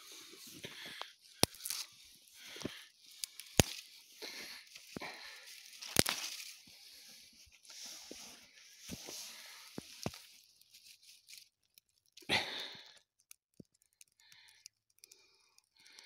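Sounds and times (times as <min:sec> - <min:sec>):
snow and brush crunching: 0:00.0 - 0:11.4
dry twigs snapping: 0:00.0 - 0:16.0.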